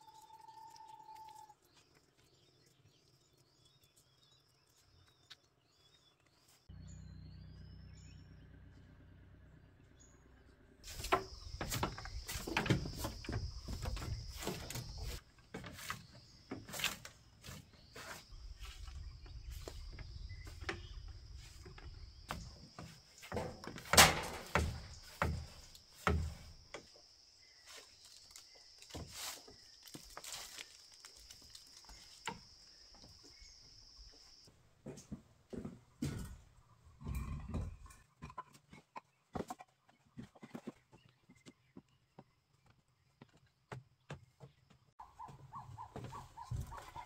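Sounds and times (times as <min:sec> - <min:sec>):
broom sweeping bamboo floor: 0:10.8 - 0:27.0, 0:27.6 - 0:32.4
knocks on bamboo: 0:23.4 - 0:26.4.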